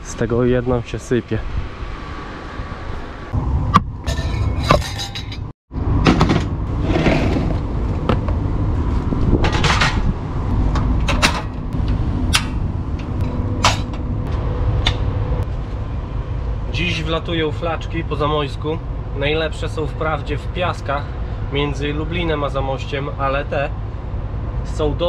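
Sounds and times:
steady low rumble: 0:00.0 - 0:25.0
camping stove handling clatter: 0:13.2 - 0:14.0.

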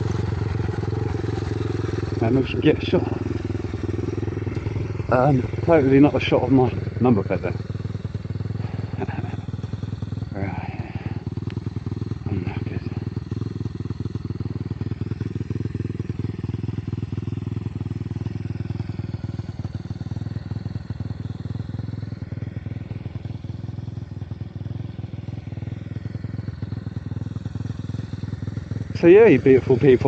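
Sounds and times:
minibike engine running: 0:00.0 - 0:30.0.

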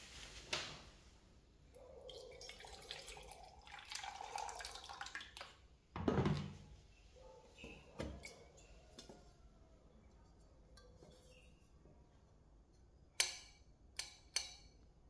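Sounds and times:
water pouring into metal mug: 0:02.1 - 0:05.6.

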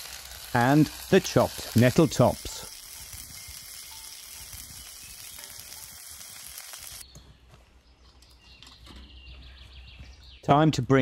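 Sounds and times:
food sizzling in oil: 0:00.0 - 0:07.0.

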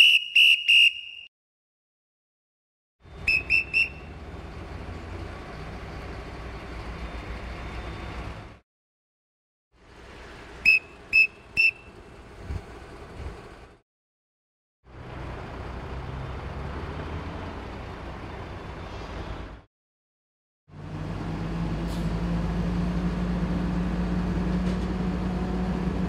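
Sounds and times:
short whistle blasts: 0:00.0 - 0:01.3, 0:03.2 - 0:04.1, 0:10.6 - 0:11.9.

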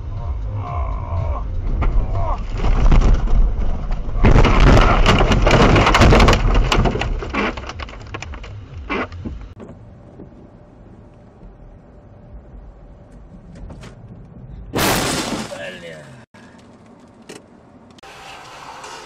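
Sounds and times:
low vehicle hum: 0:00.0 - 0:18.1
car crashing: 0:01.7 - 0:09.8, 0:13.3 - 0:15.8.

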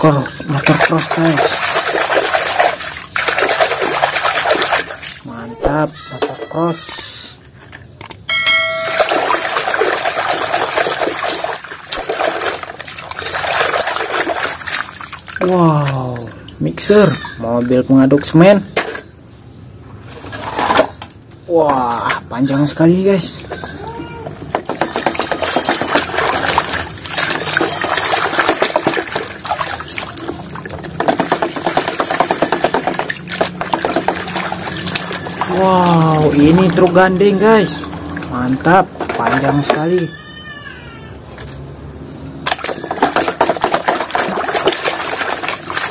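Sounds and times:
water splashing in a basin: 0:00.0 - 0:06.8, 0:07.6 - 0:18.3, 0:21.5 - 0:40.5, 0:41.8 - 0:45.9
short ringing tone: 0:08.3 - 0:09.4.

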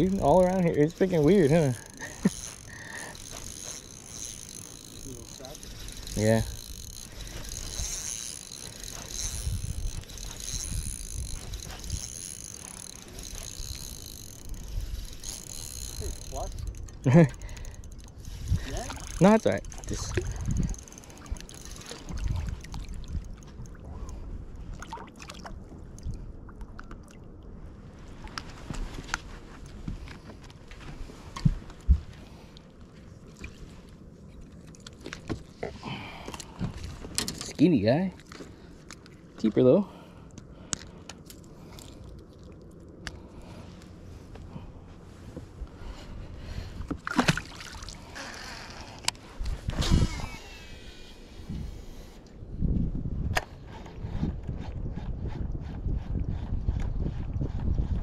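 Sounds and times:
fishing reel clicking whir: 0:00.0 - 0:23.7, 0:48.0 - 0:52.3
low steady rumble: 0:00.0 - 0:37.2.

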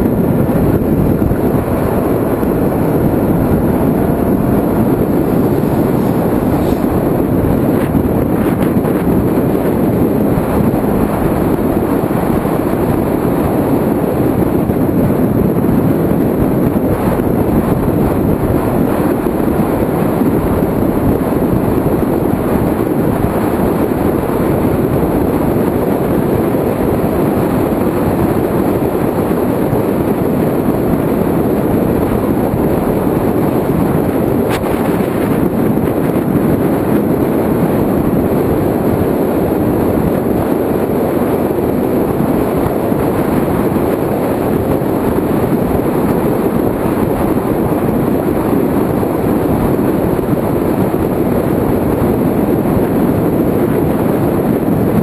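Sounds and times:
motorcycle engine running: 0:00.0 - 0:15.4, 0:32.8 - 0:36.2
wind rushing over camera: 0:00.0 - 0:55.0.

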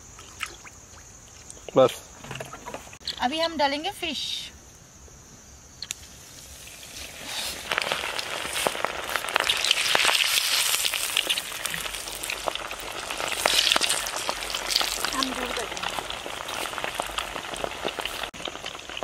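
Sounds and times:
fish deep-frying in oil: 0:06.2 - 0:19.0
oil popping: 0:06.6 - 0:19.0.

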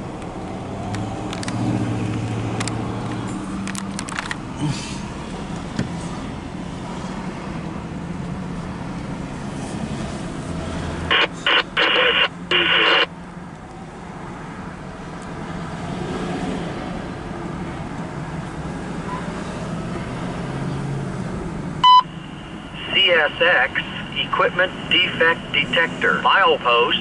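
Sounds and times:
car hum: 0:00.0 - 0:16.0, 0:19.9 - 0:27.0
radio electronic tone bursts: 0:11.1 - 0:13.1.

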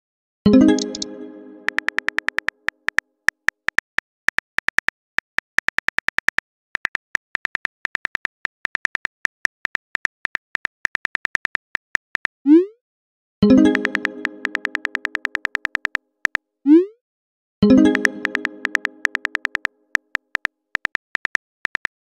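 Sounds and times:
app chime: 0:00.5 - 0:02.3, 0:13.5 - 0:15.4, 0:17.6 - 0:19.6
keyboard tap clicks: 0:00.8 - 0:01.1, 0:01.7 - 0:04.9, 0:13.7 - 0:16.4, 0:17.9 - 0:22.0.

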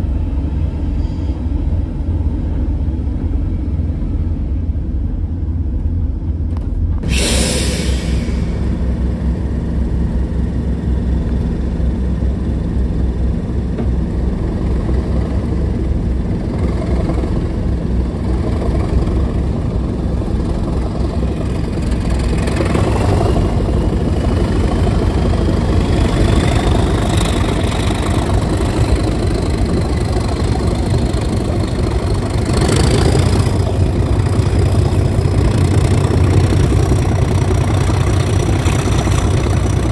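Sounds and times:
locomotive diesel engine rumbling: 0:00.0 - 0:39.9
turbocharger whistle: 0:07.0 - 0:08.6.

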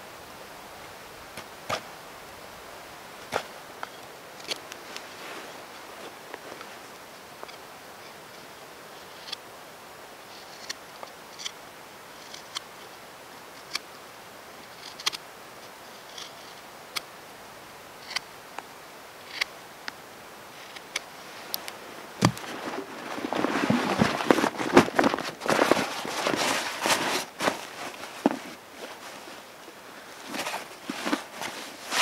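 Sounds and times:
rustling and handling noise: 0:00.8 - 0:09.4, 0:18.0 - 0:32.0.

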